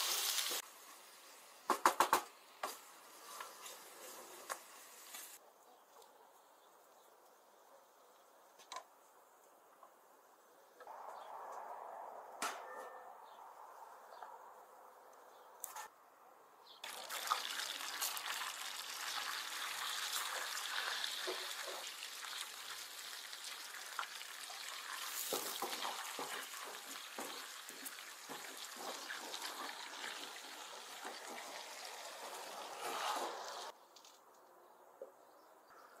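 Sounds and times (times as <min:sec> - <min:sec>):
butter sizzling in a pan: 0:00.0 - 0:00.6, 0:16.8 - 0:33.7.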